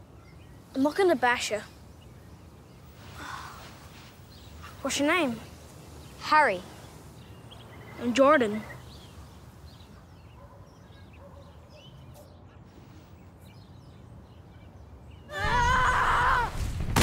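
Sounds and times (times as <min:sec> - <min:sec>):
small birds chirping: 0:00.0 - 0:16.4.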